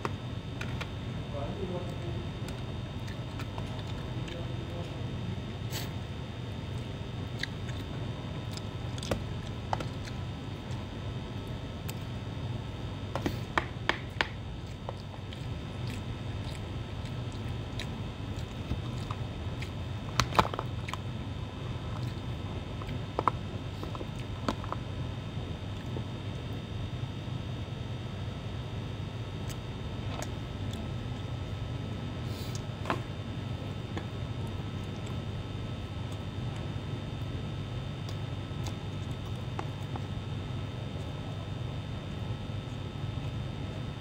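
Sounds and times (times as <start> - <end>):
steady low hum: 0.0 - 44.0
person chewing: 2.4 - 4.4, 6.6 - 12.1, 13.2 - 24.8.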